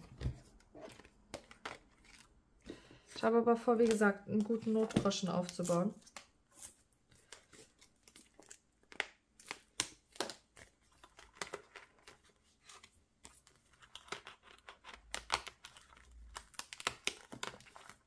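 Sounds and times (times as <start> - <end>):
paper cards shuffled: 0.0 - 2.3, 3.7 - 18.0
plastic pocket crinkling: 0.0 - 2.4, 3.6 - 6.3.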